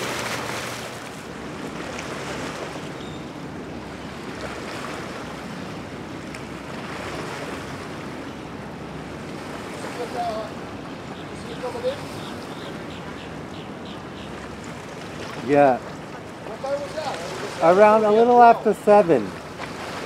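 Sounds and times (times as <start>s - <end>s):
water wash: 0.0s - 3.0s, 14.4s - 20.0s
motorboat engines droning: 0.0s - 20.0s
wind: 0.0s - 20.0s.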